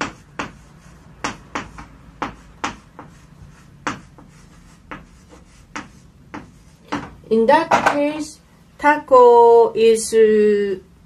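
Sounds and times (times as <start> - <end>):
chalk tapping on blackboard: 0.0 - 8.0.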